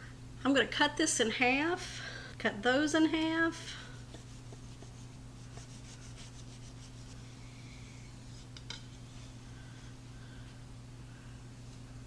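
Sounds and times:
knife sawing through pastry: 4.2s - 7.1s.

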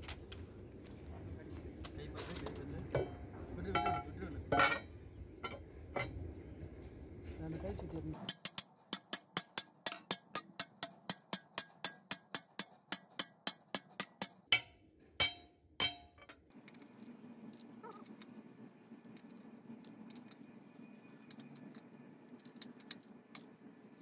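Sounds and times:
hammer tapping on steel ring: 8.2s - 16.3s.

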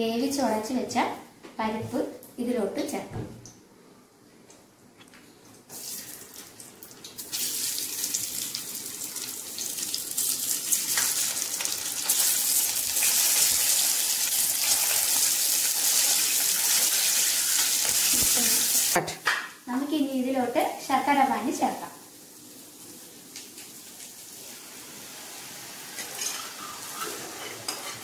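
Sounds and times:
ghee sizzling in a pan: 7.2s - 19.0s, 21.1s - 28.0s.

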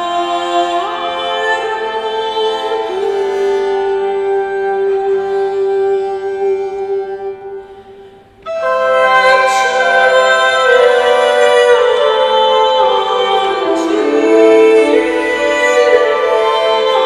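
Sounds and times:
woman singing: 0.0s - 7.7s, 8.5s - 17.0s
bowed viol: 0.0s - 17.0s.

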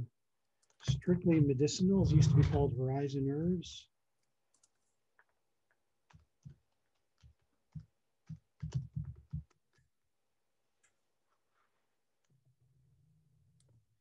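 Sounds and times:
keyboard typing: 6.1s - 9.8s.

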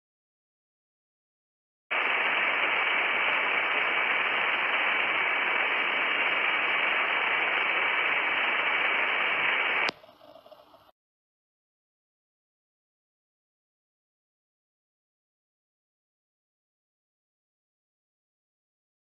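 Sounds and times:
faint hiss: 1.9s - 10.9s
loud radio static: 1.9s - 10.9s.

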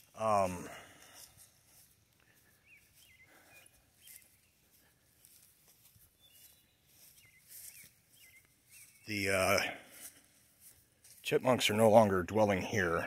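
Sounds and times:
faint bird chirps: 1.8s - 9.8s.

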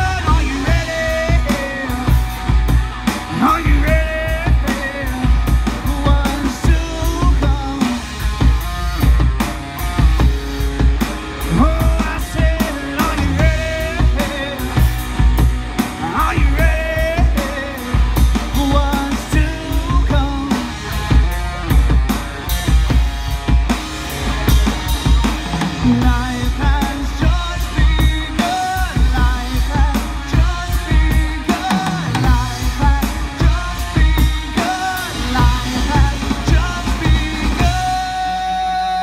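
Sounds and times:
person singing: 0.0s - 2.5s, 3.2s - 8.2s, 11.4s - 15.1s, 25.6s - 39.0s
bass guitar: 0.0s - 39.0s
distorted electric guitars: 0.0s - 39.0s
drum kit beat: 0.0s - 39.0s.

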